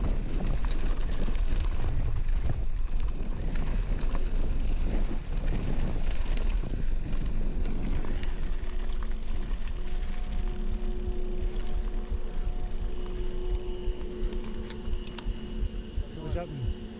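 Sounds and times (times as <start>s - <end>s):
wind rushing over microphone: 0.0s - 10.3s
bike clicks and rattles: 0.0s - 15.3s.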